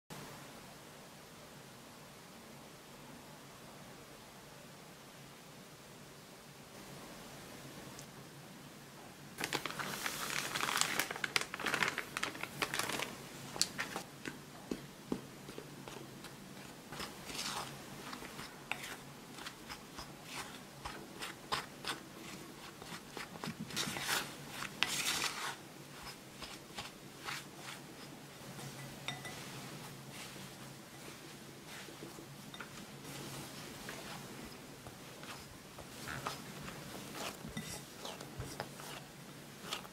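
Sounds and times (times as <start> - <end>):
spatula scraping dough in bowl: 15.5 - 39.9.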